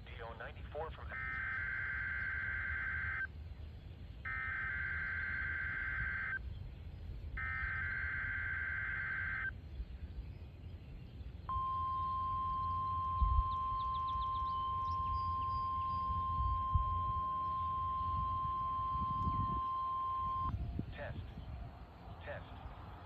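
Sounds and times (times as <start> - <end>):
warbling data bursts: 0.9 - 3.3, 4.3 - 6.4, 7.4 - 9.5, 11.5 - 20.5.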